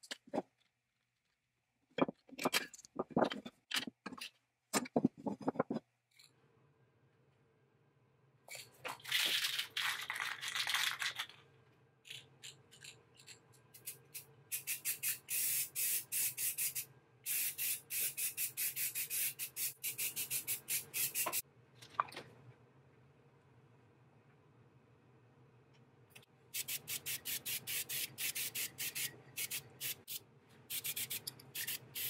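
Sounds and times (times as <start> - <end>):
aerosol can spraying: 13.8 - 21.4, 26.6 - 32.0.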